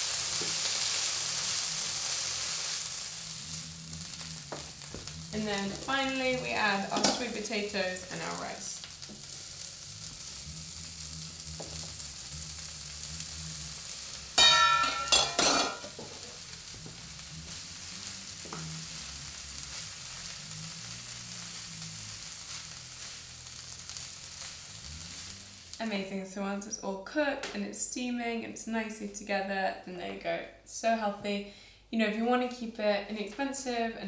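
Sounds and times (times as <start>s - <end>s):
vegetables sizzling in a frying pan: 0.0s - 26.1s.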